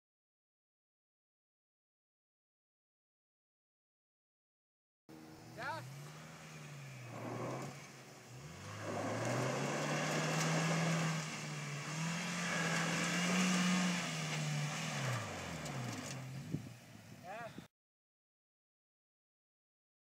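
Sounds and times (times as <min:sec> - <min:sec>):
engine revving hard: 0:05.1 - 0:16.7.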